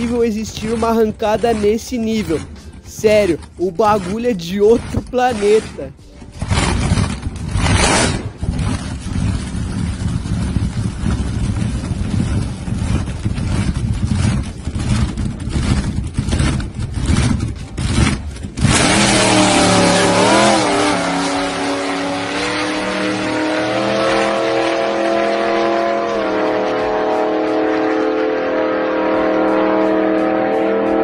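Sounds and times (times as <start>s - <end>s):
drag car engine revving: 0.0s - 31.0s
engine pops: 6.2s - 19.3s.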